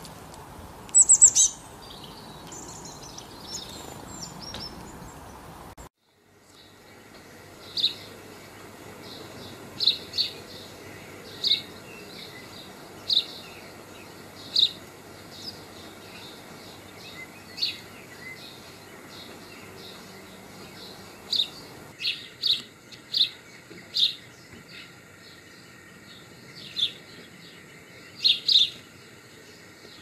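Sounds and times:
bird giving high calls: 0:00.9 - 0:04.8.

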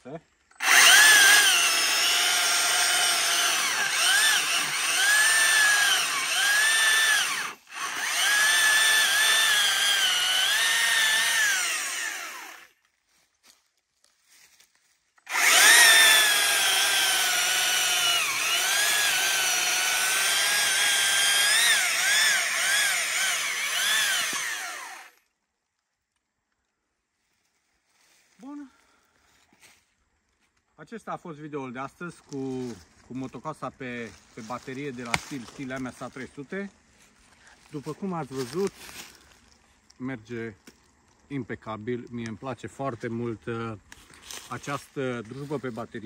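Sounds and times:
battery chainsaw cutting logs: 0:00.5 - 0:12.8, 0:15.2 - 0:25.2.

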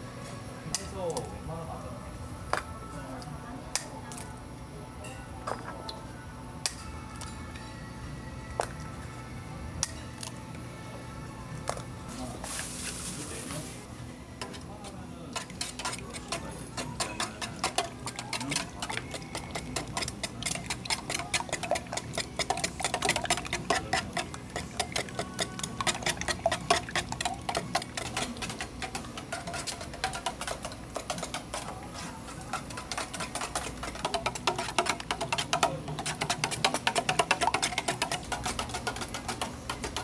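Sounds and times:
utensil clattering on metal pan: 0:15.4 - 0:31.8, 0:32.4 - 0:40.0.

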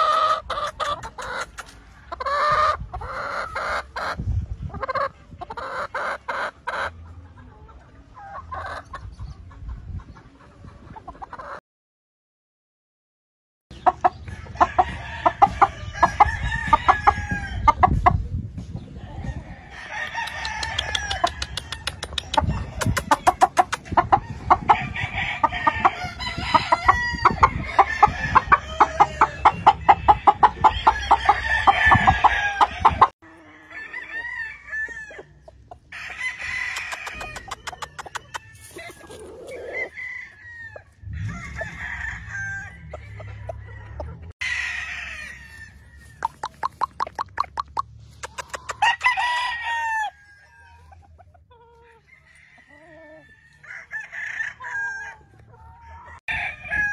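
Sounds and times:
rapid clucking: 0:00.0 - 0:01.8, 0:20.2 - 0:24.8, 0:36.6 - 0:39.9, 0:46.2 - 0:49.2
roosters crowing: 0:00.0 - 0:04.2, 0:14.1 - 0:18.0, 0:18.9 - 0:56.9.

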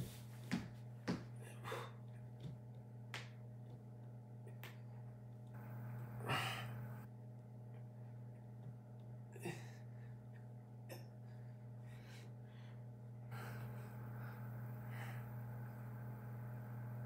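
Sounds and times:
steady low hum: 0:00.0 - 0:17.0
man breathing hard: 0:06.1 - 0:07.0, 0:11.2 - 0:15.5.

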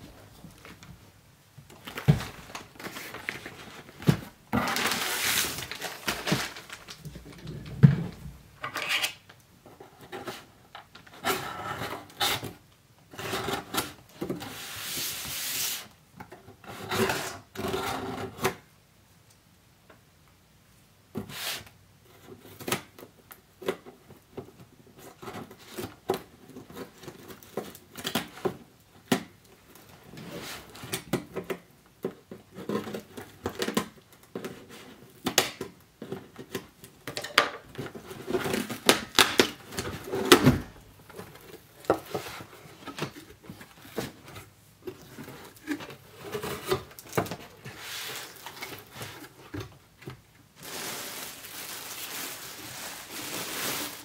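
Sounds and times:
cardboard flaps rustling: 0:01.7 - 0:08.4, 0:37.7 - 0:54.0.

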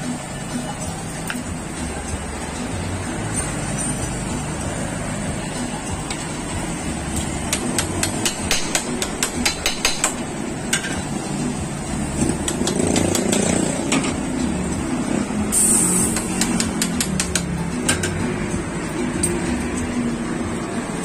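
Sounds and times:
short high hiss: 0:15.5 - 0:16.2.

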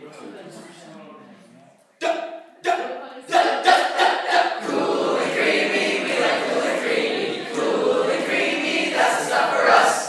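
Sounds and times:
group of voices singing: 0:02.7 - 0:10.0.

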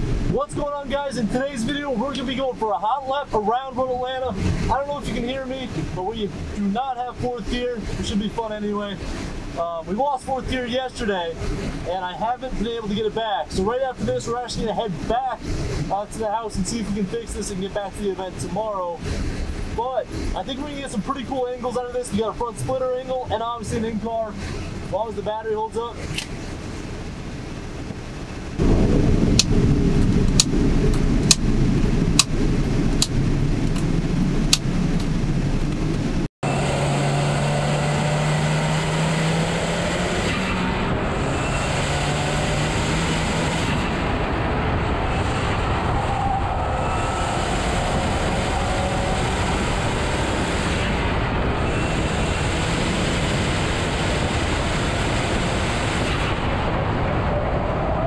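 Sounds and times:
car engine running: 0:00.0 - 0:39.0
tyre and wind roar: 0:00.0 - 0:58.0
sharp clicks: 0:29.3 - 0:29.6, 0:30.2 - 0:31.5, 0:32.1 - 0:33.9, 0:34.5 - 0:36.0.

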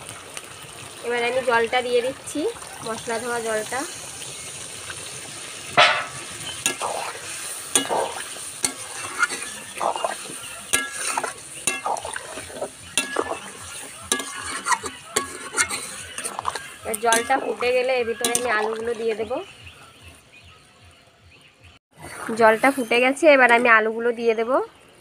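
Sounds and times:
faint sizzle: 0:00.0 - 0:21.1
metal spatula scraping a pan: 0:05.8 - 0:18.8.

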